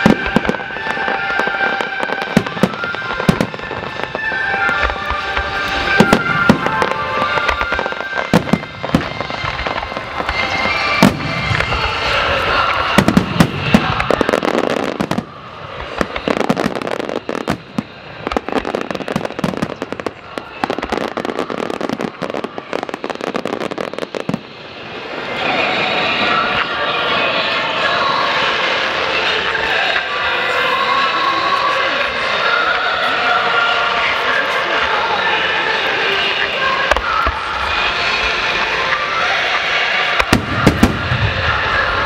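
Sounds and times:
fireworks crackling: 0:00.0 - 0:42.0
firework shells booming: 0:40.2 - 0:42.0.

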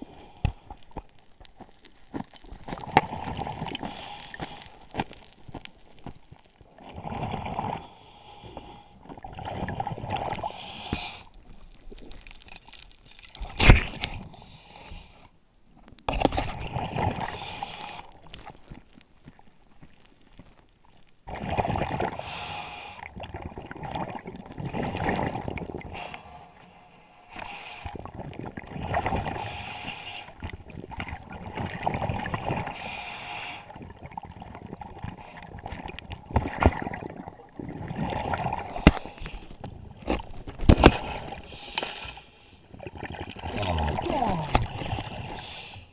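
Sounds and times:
gurgling bubbles: 0:00.7 - 0:07.9, 0:09.0 - 0:14.2, 0:16.1 - 0:18.8, 0:21.2 - 0:22.4, 0:23.0 - 0:26.2, 0:27.7 - 0:32.9, 0:33.6 - 0:41.7, 0:42.7 - 0:45.5
diver breathing through regulator: 0:10.3 - 0:11.7, 0:22.1 - 0:23.2, 0:25.8 - 0:28.2, 0:28.9 - 0:30.6, 0:32.5 - 0:33.8.

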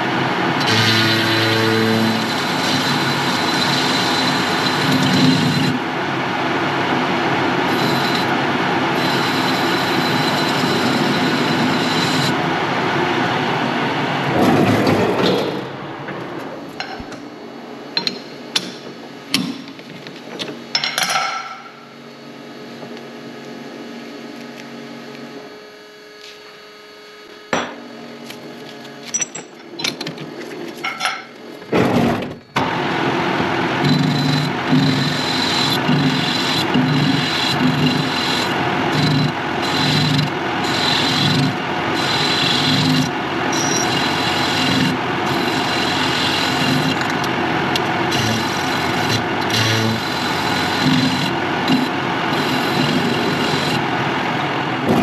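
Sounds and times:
loud power tool running: 0:00.0 - 0:14.5, 0:32.6 - 0:55.0.

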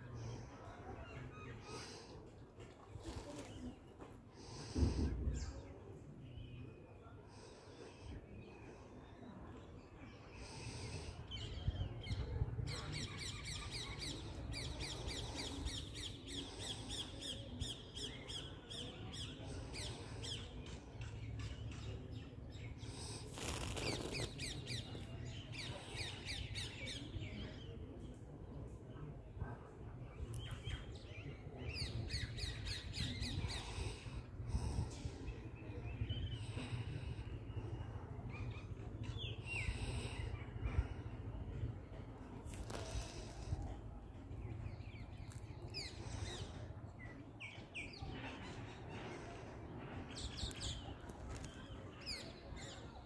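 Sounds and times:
small birds chirping: 0:02.9 - 0:28.1, 0:30.2 - 0:53.0
noisy rustle: 0:23.0 - 0:24.7.

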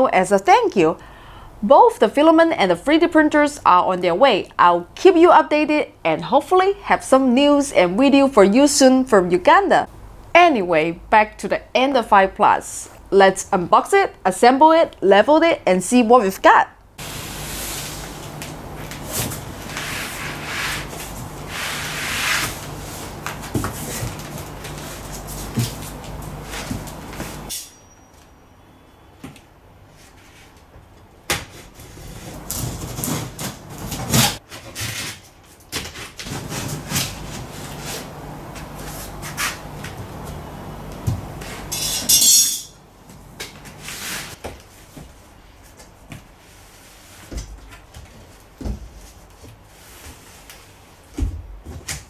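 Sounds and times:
loud cardboard tearing scrape: 0:31.6 - 0:38.1.

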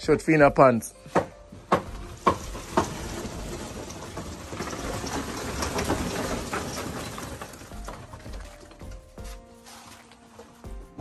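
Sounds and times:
knocks on wooden form: 0:01.1 - 0:03.6
wet concrete pouring: 0:01.9 - 0:10.8.

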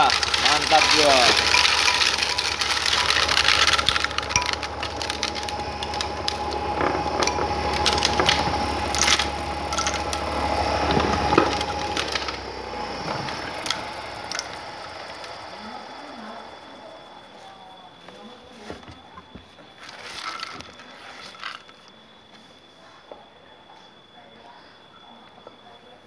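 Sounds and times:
corn cobs clattering in sheller: 0:00.0 - 0:16.8, 0:18.5 - 0:22.0
low engine hum: 0:00.0 - 0:17.3.

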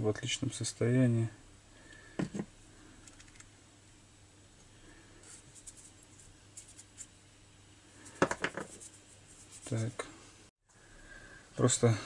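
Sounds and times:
metal parts knocking on workbench: 0:08.2 - 0:08.7.

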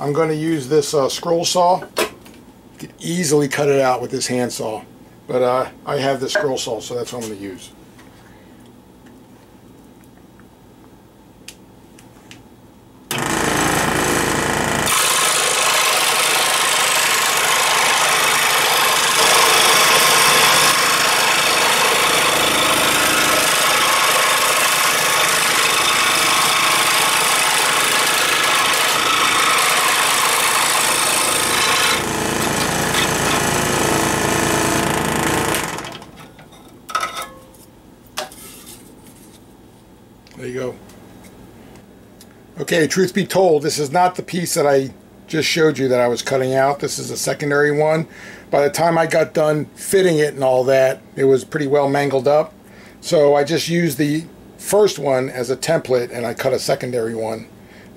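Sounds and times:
scroll saw running: 0:13.1 - 0:36.2.

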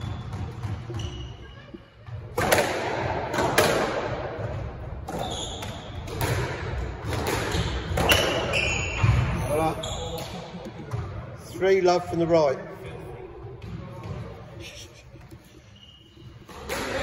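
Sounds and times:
shoes squeaking on wooden floor: 0:00.0 - 0:02.2, 0:07.5 - 0:10.3
squash ball cracks and thuds: 0:02.3 - 0:09.3.

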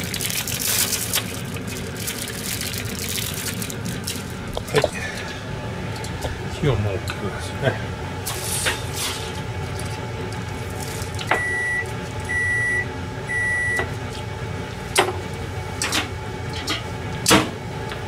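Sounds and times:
steady low hum: 0:00.0 - 0:18.0
kitchen appliance beeps: 0:11.3 - 0:13.9.

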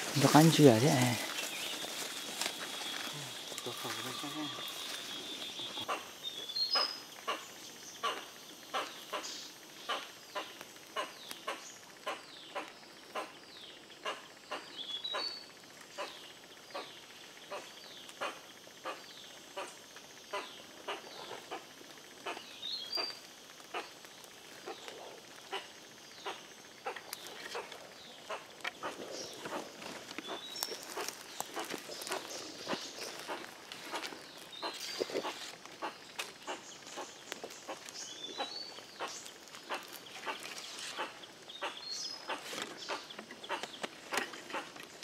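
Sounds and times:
footsteps crunching dry leaves: 0:00.0 - 0:05.8, 0:28.9 - 0:38.3
bird chirps: 0:00.2 - 0:13.3.

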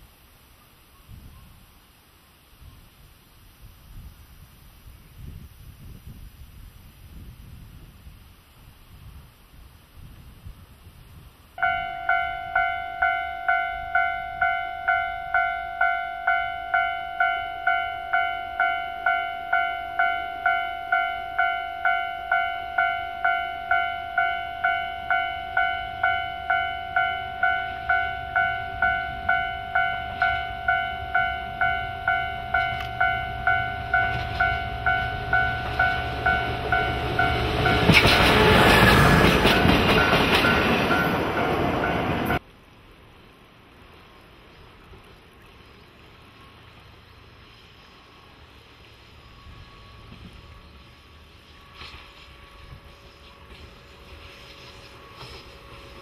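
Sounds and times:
level crossing bell ringing: 0:11.6 - 0:37.9
diesel locomotive passing: 0:11.6 - 0:42.5, 0:43.1 - 0:56.0.

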